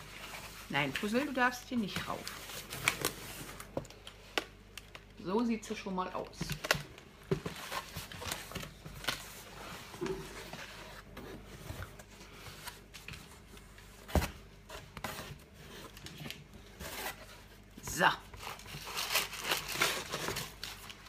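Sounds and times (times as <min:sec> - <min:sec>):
cardboard box and paper rustling: 0:06.5 - 0:21.0.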